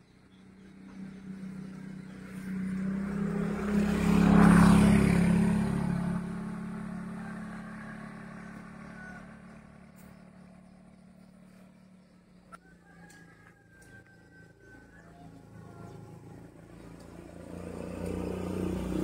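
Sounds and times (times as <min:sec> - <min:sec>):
vehicle driving past: 0:00.2 - 0:19.0.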